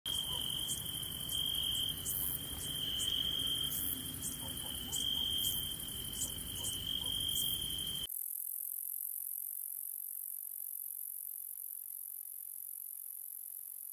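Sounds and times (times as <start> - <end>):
continuous hissing buzz: 0.1 - 8.1
insect high trill: 0.1 - 13.9.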